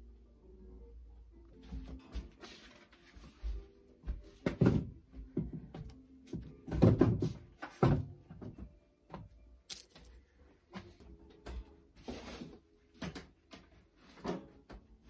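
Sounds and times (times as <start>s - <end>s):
faint background music: 0.0s - 15.0s
thuds on a wooden floor: 4.4s - 5.9s, 6.6s - 8.6s.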